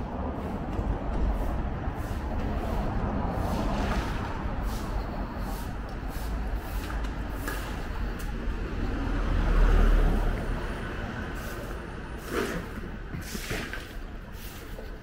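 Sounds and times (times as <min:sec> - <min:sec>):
vehicle engine passing: 0:00.0 - 0:13.5
steady roadway noise: 0:00.0 - 0:15.0.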